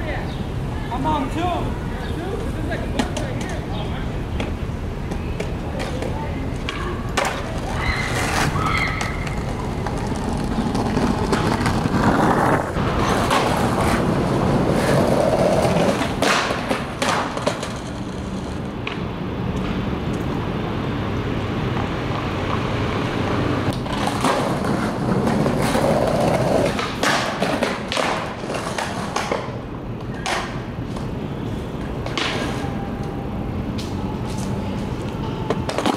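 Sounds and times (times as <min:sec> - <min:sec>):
skateboard wheels rolling on concrete: 0:00.0 - 0:35.9
skateboard deck clacking on pavement: 0:02.9 - 0:03.7, 0:04.4 - 0:19.1, 0:21.7 - 0:31.2, 0:31.8 - 0:32.6, 0:35.4 - 0:35.9.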